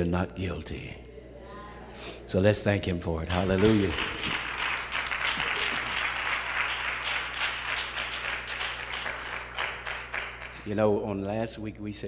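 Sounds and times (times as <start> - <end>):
congregation applauding: 3.2 - 10.9.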